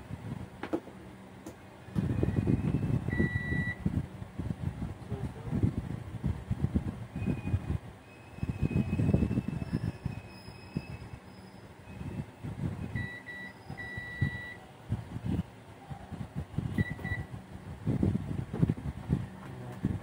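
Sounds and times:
multimeter continuity beeps: 2.0s - 3.9s, 11.8s - 14.6s, 16.7s - 17.3s.

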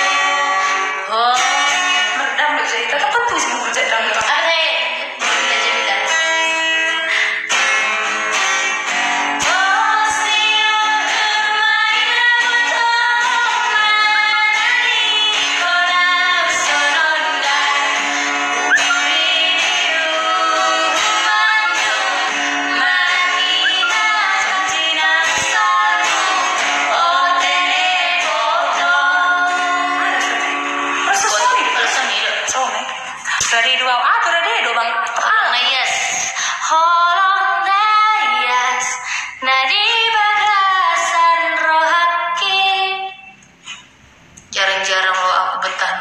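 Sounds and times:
acoustic guitar: 0.0s - 46.0s
women singing together: 9.4s - 43.3s.

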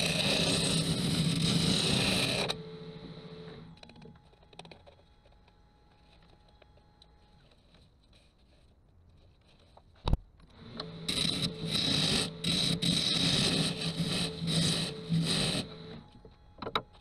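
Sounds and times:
tool shaving wood: 0.0s - 2.8s, 10.8s - 16.1s
lathe humming: 0.0s - 3.9s, 10.6s - 16.5s.

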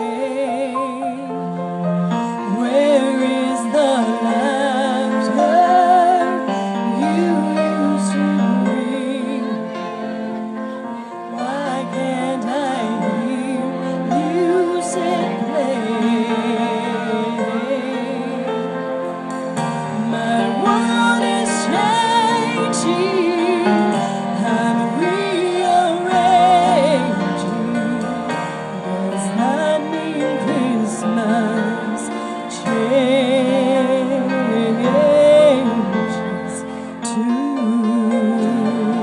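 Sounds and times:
sustained instrumental accompaniment: 0.0s - 39.0s
woman singing with vibrato: 2.2s - 10.4s, 11.2s - 18.9s, 19.6s - 39.0s.

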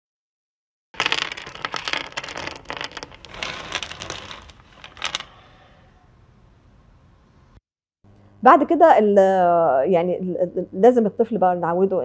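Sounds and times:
pill capsules clattering on hard surface: 1.0s - 5.3s.

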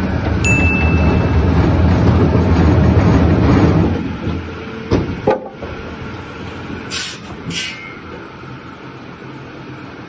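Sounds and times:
workshop machinery running: 0.0s - 6.5s.

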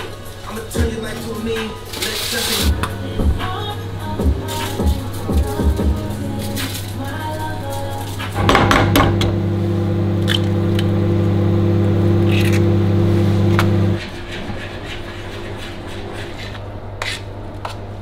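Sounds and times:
kitchen appliance humming: 2.7s - 14.0s.

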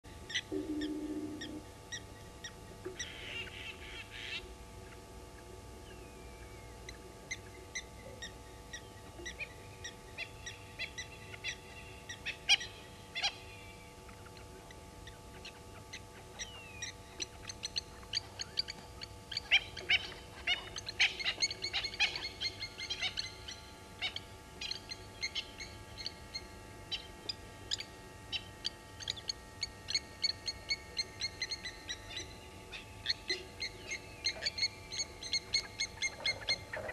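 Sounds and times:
other birds calling: 0.3s - 36.9s
lapwings alarm calls: 3.0s - 4.5s.

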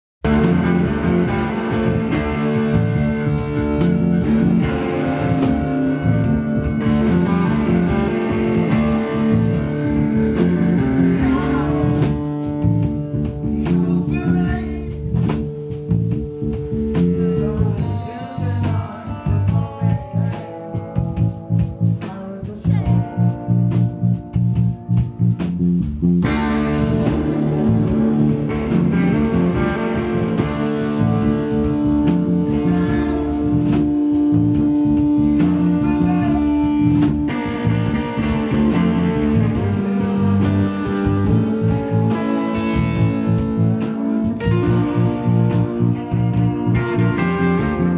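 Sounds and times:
bass guitar: 0.2s - 47.9s
drums: 0.2s - 47.9s
guitar: 0.2s - 47.9s
man singing: 11.1s - 12.2s, 13.5s - 15.0s, 17.1s - 21.0s, 22.0s - 23.3s, 32.5s - 33.4s, 35.2s - 36.6s.

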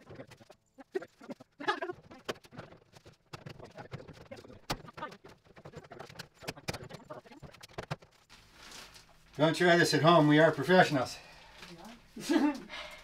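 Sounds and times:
panels clicking and knocking: 1.9s - 8.2s.

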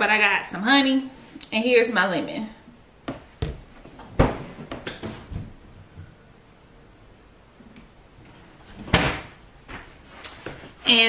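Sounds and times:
objects knocking on kitchen counter: 3.0s - 5.4s.

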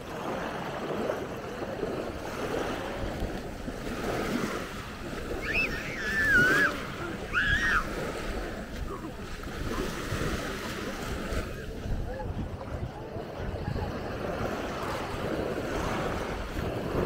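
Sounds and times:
small waves breaking on shore: 0.0s - 17.0s
wind: 0.0s - 17.0s
high sliding calls: 5.4s - 7.9s.

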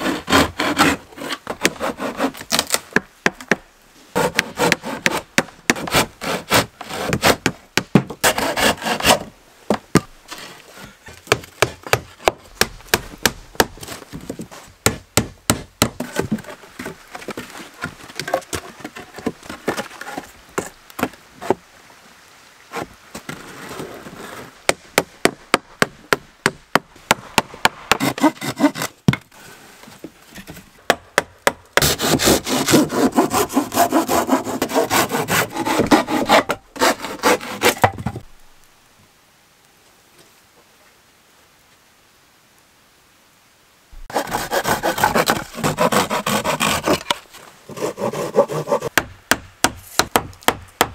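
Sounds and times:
hand saw rasping through wood: 0.0s - 2.5s, 4.2s - 7.5s, 8.2s - 9.2s, 27.9s - 28.9s, 31.8s - 37.9s, 44.1s - 47.1s, 47.7s - 48.9s.

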